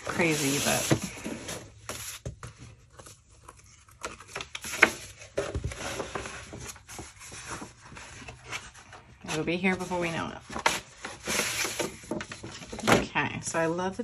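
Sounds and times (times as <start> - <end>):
paper sheets rustling: 0.0 - 12.9.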